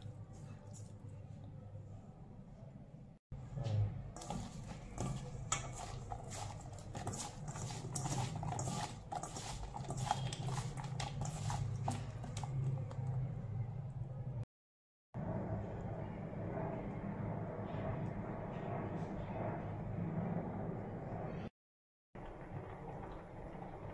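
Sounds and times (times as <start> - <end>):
vegetable slices rattling in metal bowl: 4.2 - 13.2.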